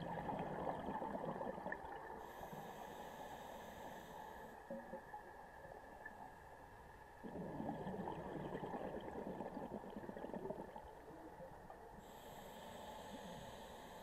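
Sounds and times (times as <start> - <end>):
underwater regulator bubbling: 7.2 - 11.1.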